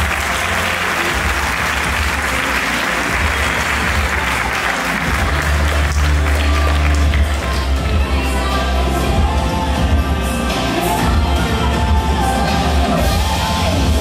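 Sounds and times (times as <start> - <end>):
audience applauding: 0.0 - 8.1
music with bass notes: 0.0 - 14.0.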